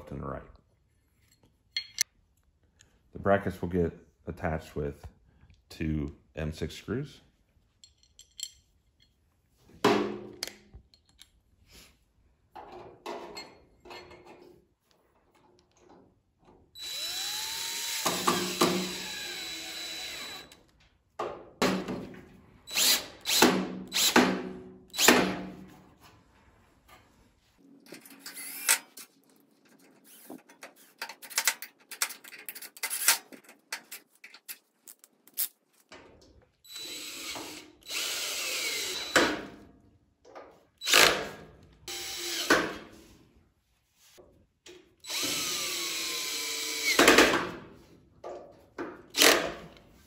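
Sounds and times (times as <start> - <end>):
parts being handled clicking: 1.2 - 2.9, 7.7 - 9.3, 10.4 - 11.5, 27.9 - 36.5
cordless drill driving screws: 16.8 - 20.6, 22.7 - 24.2, 24.9 - 25.2, 36.7 - 39.3, 40.8 - 41.2, 41.9 - 42.6, 45.0 - 47.2, 49.1 - 49.5.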